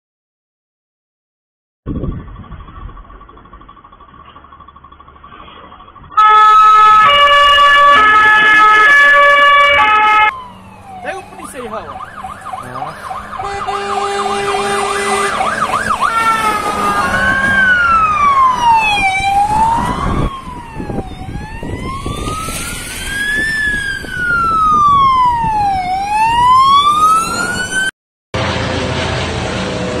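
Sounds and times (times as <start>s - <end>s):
wailing siren: 6.1s - 28.9s
steady horn tone: 6.2s - 10.3s, 13.2s - 17.5s
yelping siren: 6.2s - 27.9s.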